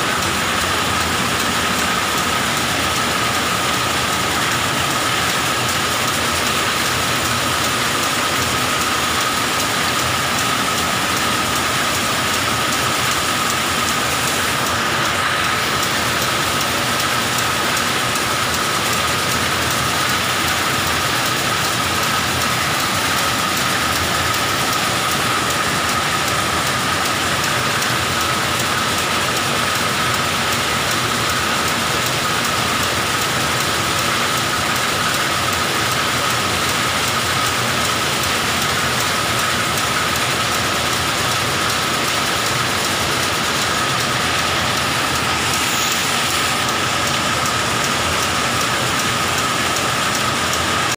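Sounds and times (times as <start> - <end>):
high machine whine: 0.0 - 50.9
whir of spinning spindles: 0.0 - 50.9.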